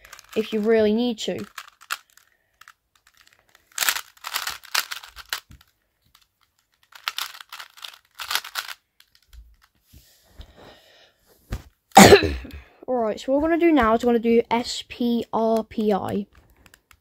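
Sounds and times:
puzzle cube clacking turns: 0.0s - 9.8s, 15.4s - 17.0s.

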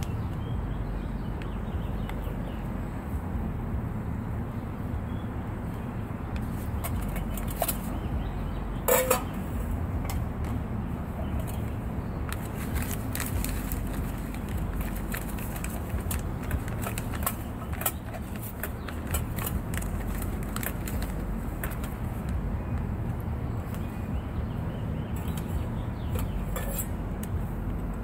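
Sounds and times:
low background rumble: 0.0s - 28.0s
foil pouch crinkling: 12.3s - 22.2s.

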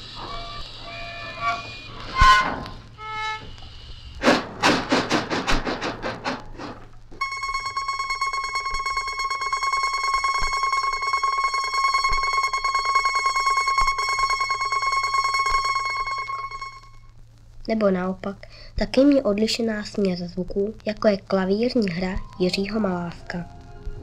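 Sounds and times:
low hum: 0.0s - 17.7s, 20.4s - 24.0s
bright buzzing tone: 7.2s - 17.2s.

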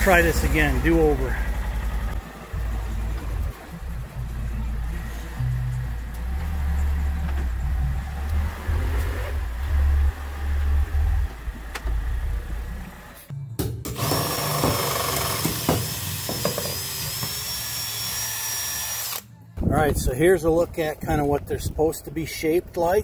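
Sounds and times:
low rumble: 0.0s - 13.0s
cordless drill whining: 14.0s - 19.3s.

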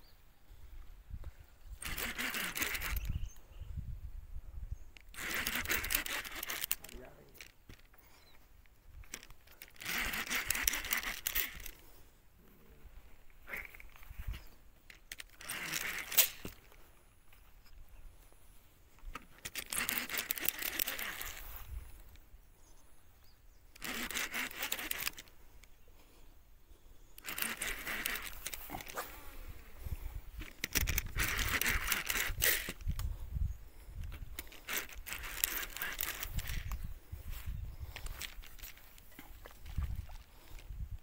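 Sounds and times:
camera handling rustle: 1.2s - 3.5s, 4.9s - 12.0s, 13.2s - 22.3s, 23.7s - 25.9s, 27.0s - 41.0s
scattered clicks: 1.8s - 3.2s, 5.0s - 11.8s, 14.8s - 16.8s, 19.0s - 22.3s, 23.7s - 25.8s, 27.1s - 29.0s, 30.3s - 33.1s, 34.0s - 36.9s, 37.8s - 41.0s.

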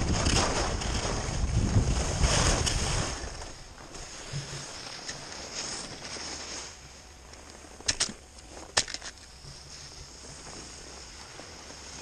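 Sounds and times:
wind on microphone: 0.0s - 4.7s
skis carving on snow: 0.0s - 12.0s.

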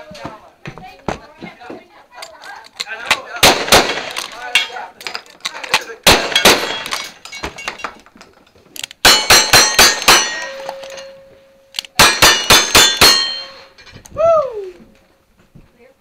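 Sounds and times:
gunshots: 3.2s - 4.5s, 6.0s - 7.1s, 12.0s - 13.5s
steel targets clanging: 4.4s - 8.1s, 9.0s - 14.0s
short falling voice-like sound: 14.1s - 14.9s.

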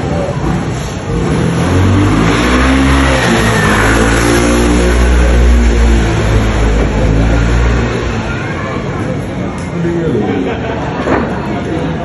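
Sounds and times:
vehicle engine revving: 0.0s - 8.4s.

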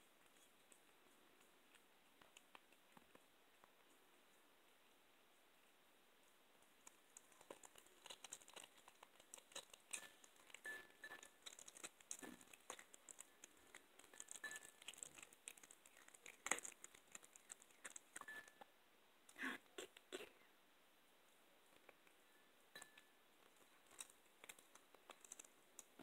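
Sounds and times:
cat crunching bone: 6.6s - 18.6s, 23.6s - 26.0s.

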